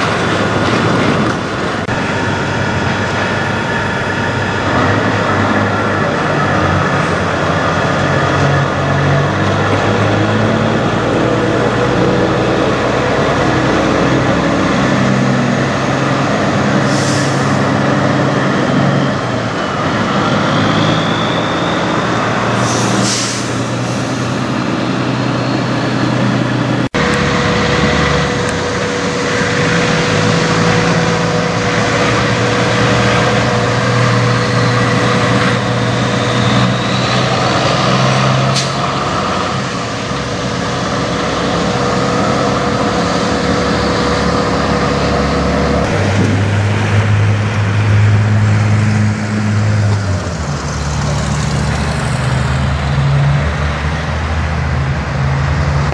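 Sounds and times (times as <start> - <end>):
diesel trucks driving past: 0.0 - 55.9
air brake hiss: 16.8 - 17.7, 22.6 - 24.4.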